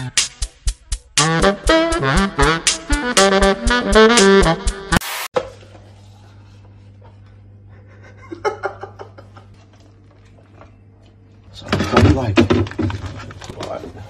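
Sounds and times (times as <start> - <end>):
jazz saxophone music: 1.2 - 5.3.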